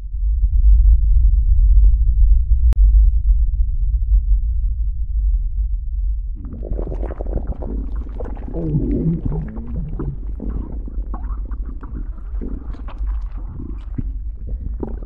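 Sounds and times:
rough crackling creaking: 6.4s - 15.0s.

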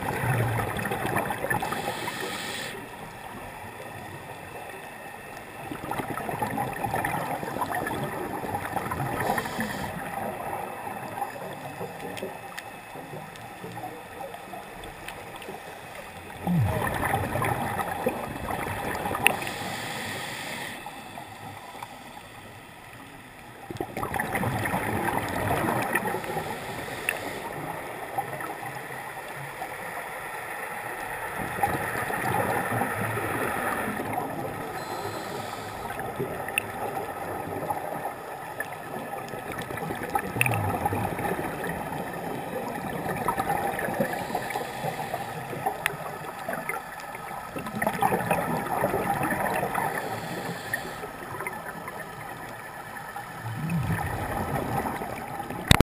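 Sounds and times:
water hiss: 1.4s - 3.0s, 8.9s - 10.2s, 19.0s - 22.6s, 25.5s - 27.8s, 34.8s - 36.2s, 43.7s - 45.7s, 49.4s - 51.4s.

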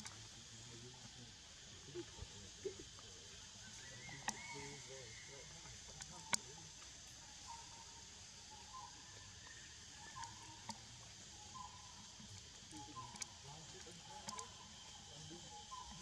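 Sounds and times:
high insect drone: 0.0s - 16.0s
faint clicks: 4.0s - 4.6s, 5.9s - 6.9s, 10.1s - 10.9s, 11.6s - 15.0s.

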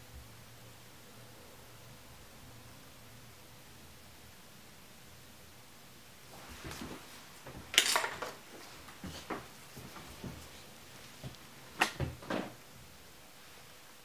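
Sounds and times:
small hand tools clinking: 7.7s - 8.4s
tool clattering: 7.7s - 8.4s.

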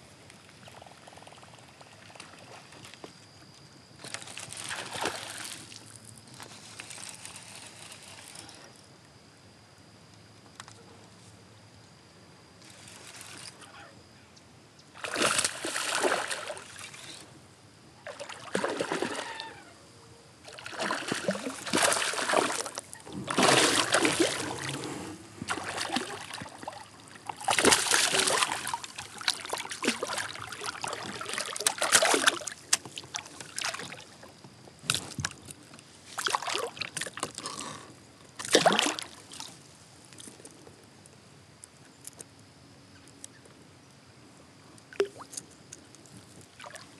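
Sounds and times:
fish thrashing and splashing: 15.0s - 16.6s, 20.5s - 24.8s, 25.5s - 34.0s, 38.4s - 39.2s.

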